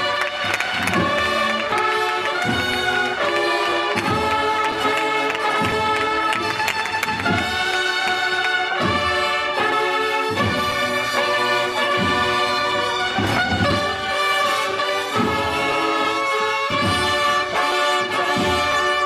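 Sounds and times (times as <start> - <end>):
regular drum beats: 0.0 - 19.0
sustained brass chords: 0.0 - 19.0.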